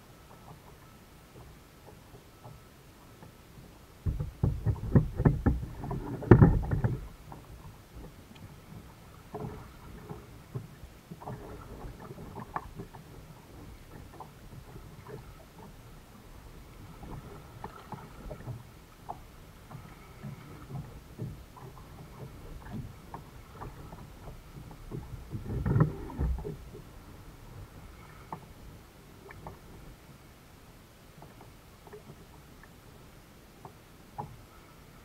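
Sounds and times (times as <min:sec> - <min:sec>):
paddle splashes: 0:00.0 - 0:35.0
paddle knocking on plastic hull: 0:04.0 - 0:08.2.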